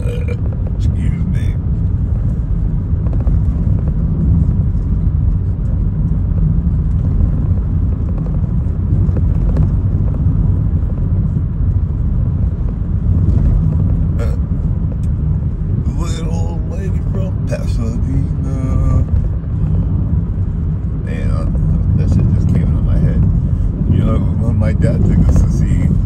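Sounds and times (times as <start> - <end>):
car engine and road noise: 0.0 - 26.0.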